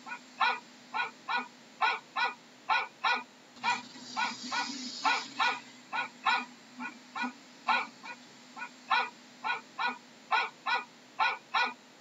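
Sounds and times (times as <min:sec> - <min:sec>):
dog barking: 0:00.0 - 0:11.8
hiss: 0:03.6 - 0:06.1.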